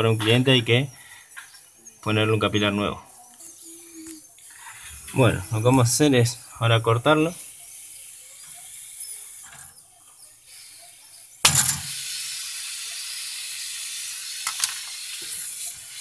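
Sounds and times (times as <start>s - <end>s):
gas hissing from tube: 10.5s - 16.0s.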